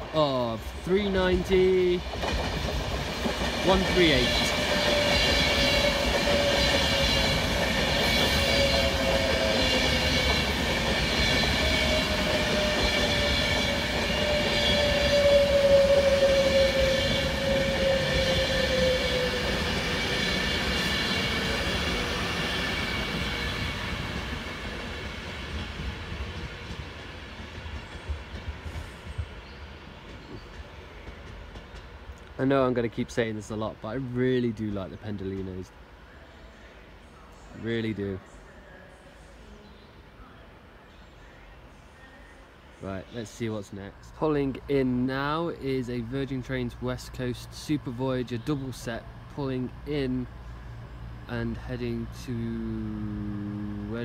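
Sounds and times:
wheel and rail noise: 0.0 - 36.6
electric train whine: 0.0 - 54.0.

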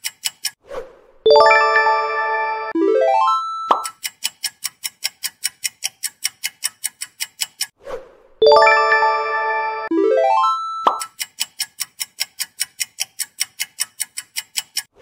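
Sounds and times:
rising run of notes ending in pop: 1.3 - 3.4, 8.4 - 10.6
bright bell-like chime: 1.3 - 3.8, 8.4 - 10.9
countdown timer ticking fast: 1.3 - 4.1, 8.4 - 11.2.

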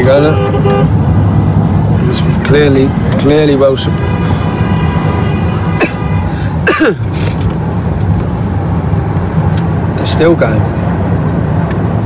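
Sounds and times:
car engine and road drone: 0.0 - 12.0.

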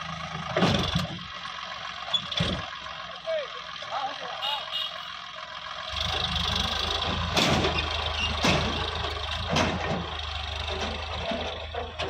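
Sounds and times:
tractor diesel engine: 0.0 - 12.0
sharp knocks: 7.2 - 11.0.

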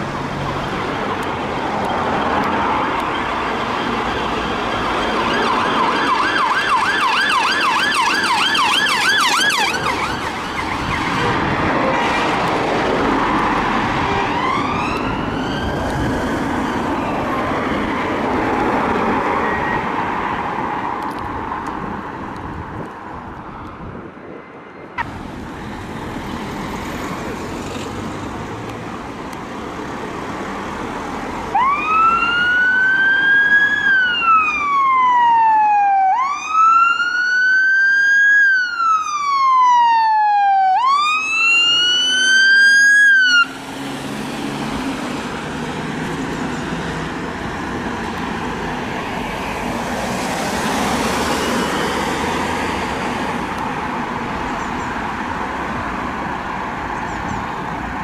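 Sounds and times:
road traffic noise: 0.0 - 58.0
ambulance siren wailing: 2.8 - 12.0, 13.1 - 17.8, 31.5 - 45.5.

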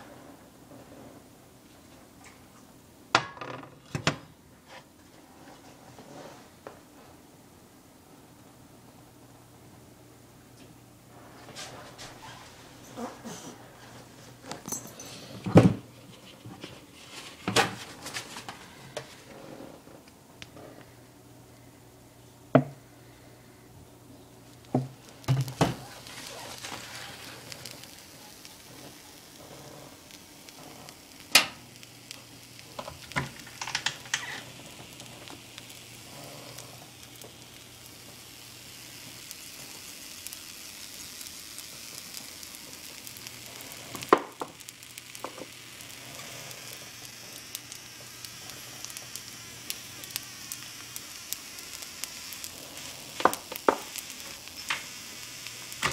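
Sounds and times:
egg sizzling in oil: 24.5 - 55.9.

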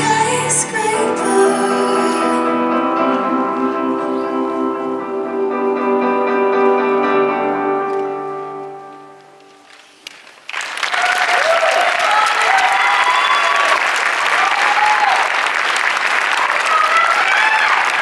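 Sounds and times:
audience applauding and cheering: 9.6 - 18.0.

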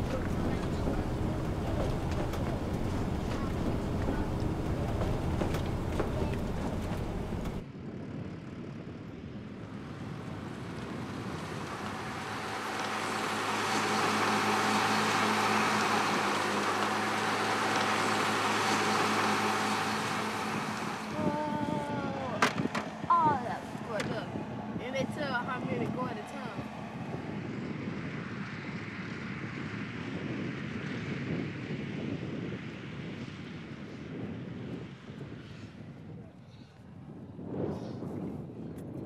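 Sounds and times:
low machine hum: 0.0 - 7.6, 9.2 - 27.6
car wind and road rumble: 0.0 - 39.0.

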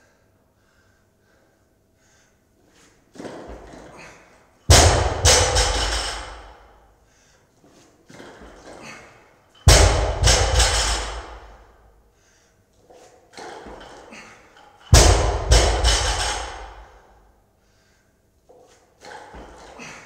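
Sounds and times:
barbell dropped on floor: 4.7 - 6.7, 9.7 - 11.7, 14.8 - 17.1.

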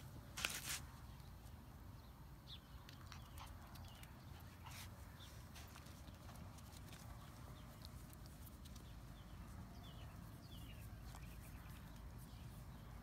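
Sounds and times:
puppy claws on concrete: 2.7 - 9.4.

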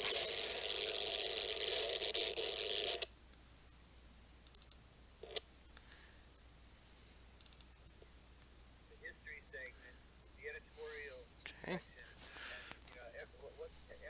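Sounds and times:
radio static hiss: 0.0 - 3.2, 8.8 - 14.0
soft clicks: 7.4 - 7.8.

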